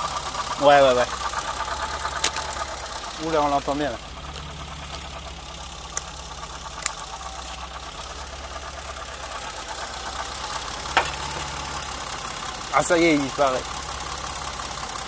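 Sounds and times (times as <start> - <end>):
cyclic engine noise: 0.0 - 14.5
car engine idling: 0.0 - 15.0
sharp clicks: 2.1 - 2.8, 5.9 - 7.2.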